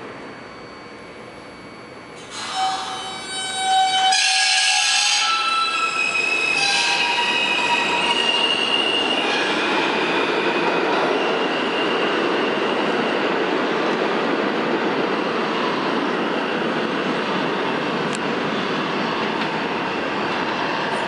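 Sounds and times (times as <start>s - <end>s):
train wheels squealing: 0.1s - 13.3s
rumble of wheels on rails: 5.4s - 21.0s.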